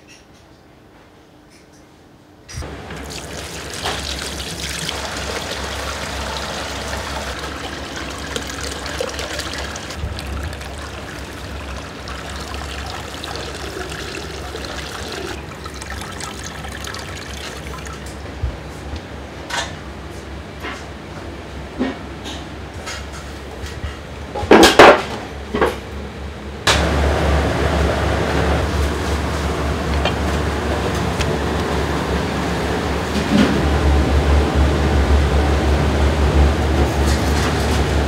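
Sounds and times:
liquid pouring into pot: 0:02.8 - 0:18.2.

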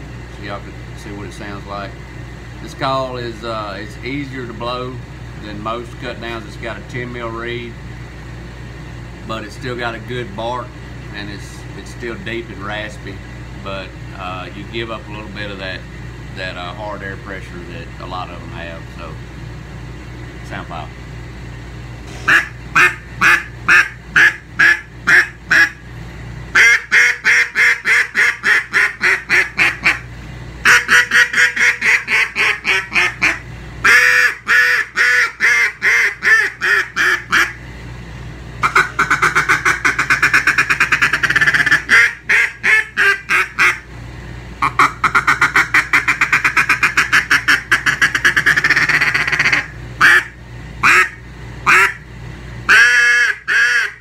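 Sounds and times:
duck call quacking: 0:22.3 - 0:25.8, 0:26.6 - 0:30.0, 0:30.6 - 0:37.6, 0:38.6 - 0:43.8, 0:44.6 - 0:52.0, 0:52.7 - 0:54.0.

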